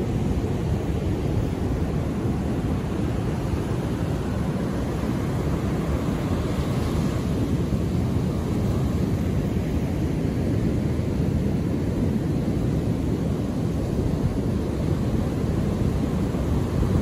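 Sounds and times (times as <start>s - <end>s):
ocean surf rumbling: 0.0s - 17.0s.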